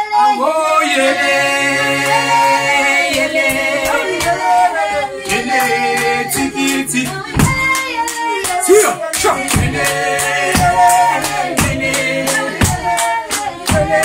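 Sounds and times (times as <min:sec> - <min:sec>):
voices singing in harmony: 0:00.0 - 0:14.0
hand claps: 0:03.0 - 0:14.0.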